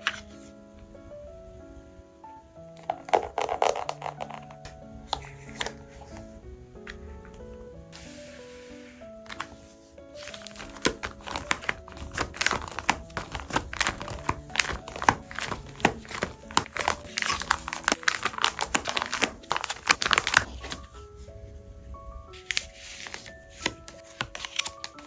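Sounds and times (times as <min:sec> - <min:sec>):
plastic pages crinkling: 0:00.0 - 0:00.5, 0:02.8 - 0:06.2, 0:09.2 - 0:21.3, 0:22.3 - 0:25.0.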